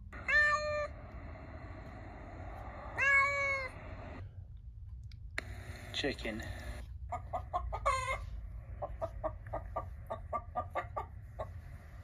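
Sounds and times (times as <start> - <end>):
cat meowing: 0.2 - 0.9, 3.0 - 3.8.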